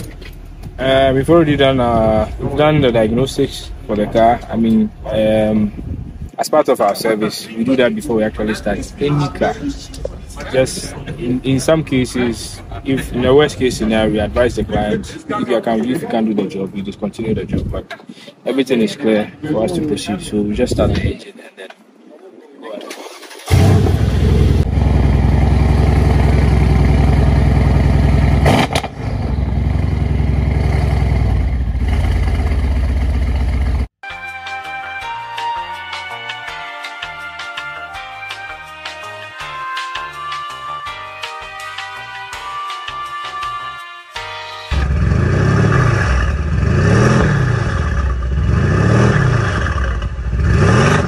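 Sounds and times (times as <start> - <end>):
car engine starting and idling: 0.0 - 6.2, 22.9 - 33.9, 44.7 - 51.0.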